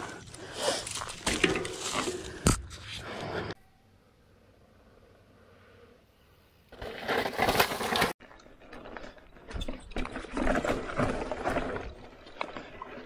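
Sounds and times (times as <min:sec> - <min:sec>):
bike clattering and rattling: 0:00.0 - 0:02.6, 0:06.7 - 0:13.0
bike tyres rolling over dirt: 0:00.0 - 0:03.4, 0:06.7 - 0:13.0.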